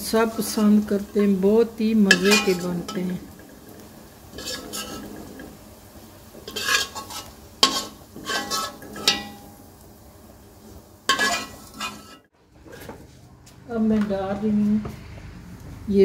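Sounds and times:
metal spoon scraping wok: 0:00.3 - 0:05.6, 0:06.3 - 0:09.6, 0:11.1 - 0:13.0.

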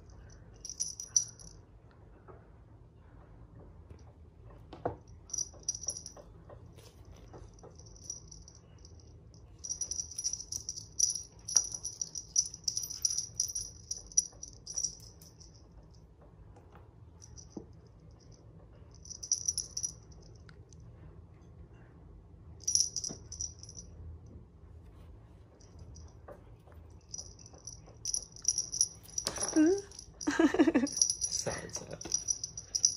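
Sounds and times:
small bell jingling: 0:00.1 - 0:01.6, 0:05.3 - 0:06.2, 0:07.6 - 0:15.7, 0:17.2 - 0:17.6, 0:19.0 - 0:20.2, 0:22.6 - 0:23.8, 0:27.1 - 0:32.9.

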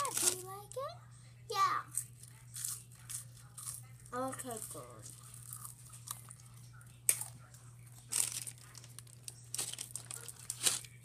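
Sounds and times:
rustling and crinkling: 0:08.0 - 0:11.0.

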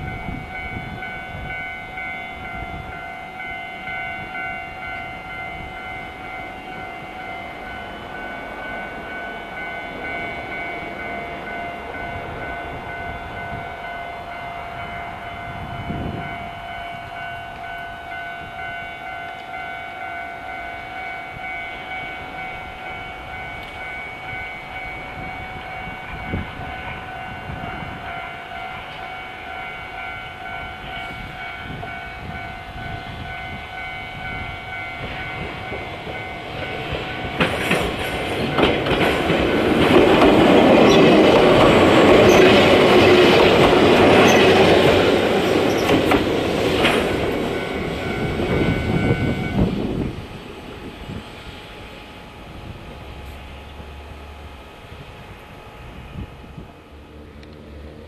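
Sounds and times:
high ringing tone: 0:00.0 - 0:38.7, 0:46.9 - 0:50.4
train rumbling: 0:00.0 - 0:58.0
train wheels clattering: 0:34.3 - 0:50.9.

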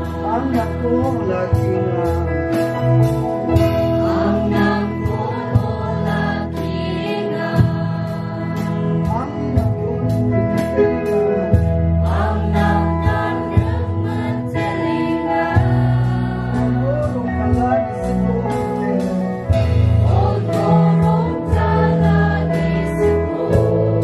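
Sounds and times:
group singing a praise song: 0:00.0 - 0:01.2, 0:03.4 - 0:09.7, 0:11.5 - 0:17.2, 0:19.5 - 0:24.0
acoustic guitar chords: 0:00.0 - 0:24.0.

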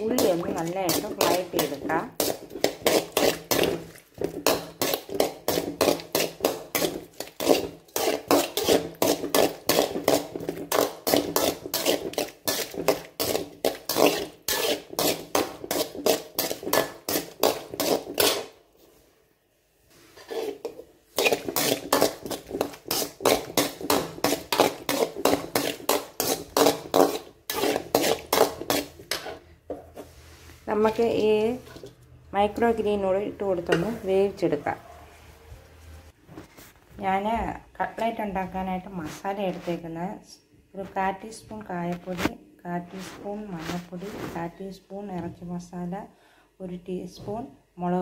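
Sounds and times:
utensil scraping onions in pan: 0:00.0 - 0:19.0, 0:19.9 - 0:32.0.

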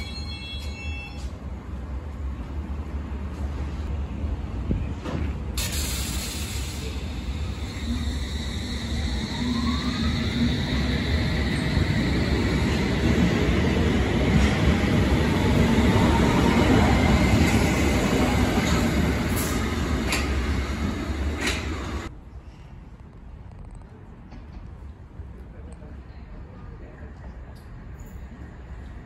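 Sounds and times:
train wheels on rails: 0:04.6 - 0:22.1.

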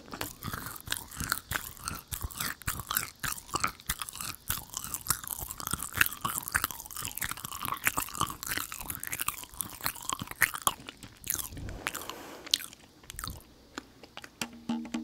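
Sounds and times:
close chewing of sticky sweet: 0:00.0 - 0:14.4
small crunches: 0:00.0 - 0:14.4
wet mouth clicks: 0:00.1 - 0:14.2.

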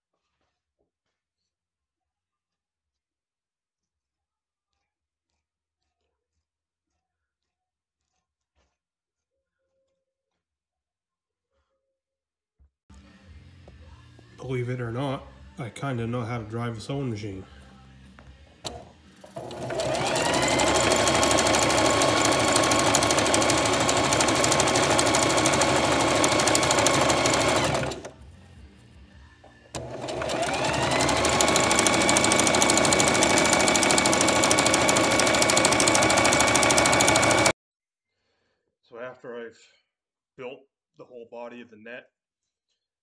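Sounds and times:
sewing machine running: 0:18.7 - 0:28.2, 0:29.7 - 0:37.5.

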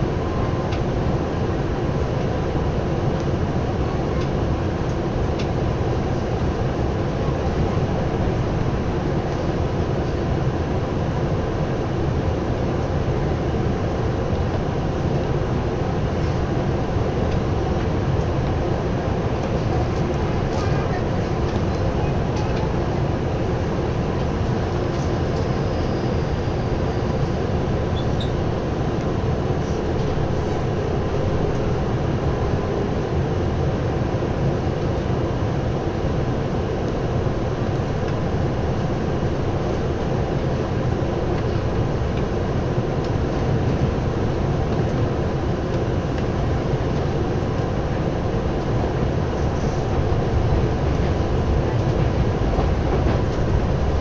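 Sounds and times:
train wheels rumbling on rails: 0:11.5 - 0:32.8, 0:37.4 - 0:54.0.

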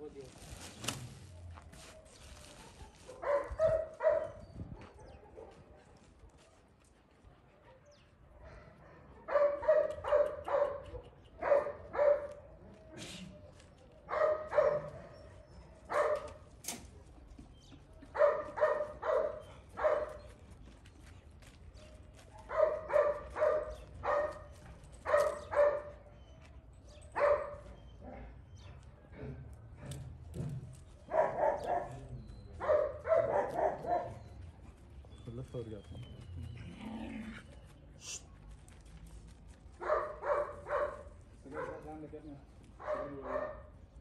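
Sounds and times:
dog barking: 0:03.1 - 0:06.0, 0:07.6 - 0:12.4, 0:14.1 - 0:15.2, 0:15.9 - 0:16.4, 0:18.1 - 0:20.2, 0:22.3 - 0:26.0, 0:27.2 - 0:28.2, 0:31.1 - 0:34.3, 0:39.8 - 0:42.0, 0:42.8 - 0:43.8.

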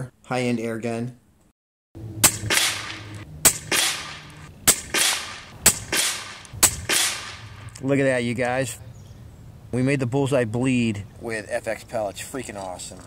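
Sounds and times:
air rifle shots: 0:02.2 - 0:07.7.

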